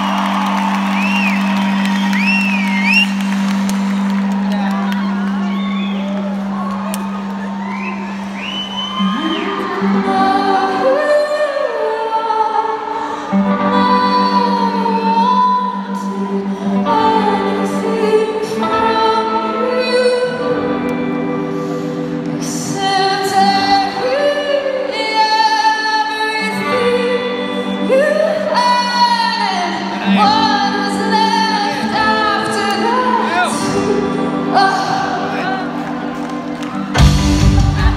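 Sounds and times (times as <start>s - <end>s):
woman singing lead vocal: 9.0s - 36.1s, 37.0s - 37.9s.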